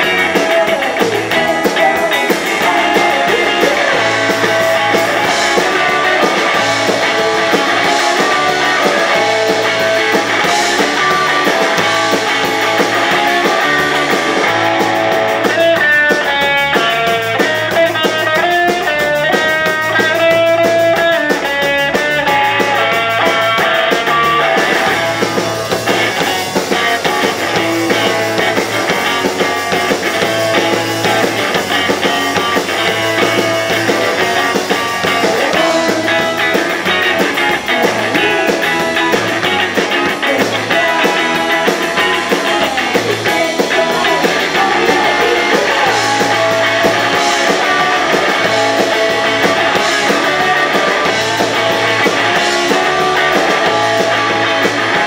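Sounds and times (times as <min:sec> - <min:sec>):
drum kit: 0:00.0 - 0:55.0
electric guitars: 0:00.0 - 0:55.0.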